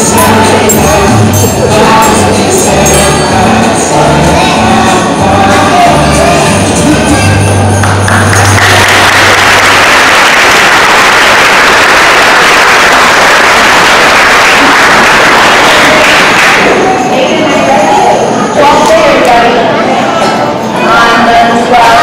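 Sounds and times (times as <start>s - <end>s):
audience applauding: 7.8s - 16.8s.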